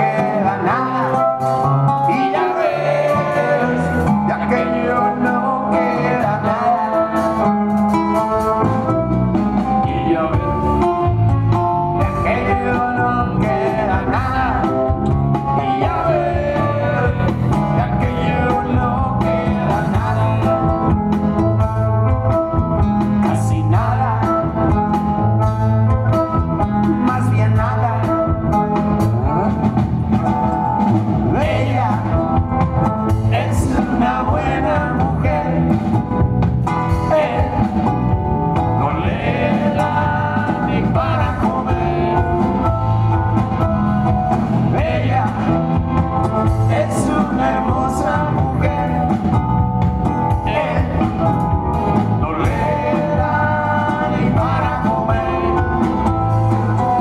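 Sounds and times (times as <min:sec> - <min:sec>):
person singing: 0:00.0 - 0:07.5, 0:09.6 - 0:21.0, 0:23.2 - 0:24.6, 0:33.2 - 0:35.8, 0:38.7 - 0:42.7, 0:46.5 - 0:49.3, 0:52.0 - 0:57.0
live band playing: 0:00.0 - 0:57.0.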